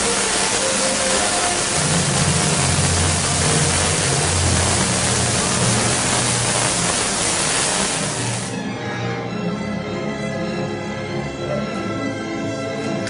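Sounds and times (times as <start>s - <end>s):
tesla coil buzzing: 0.0s - 8.6s
orchestral music: 0.0s - 13.0s.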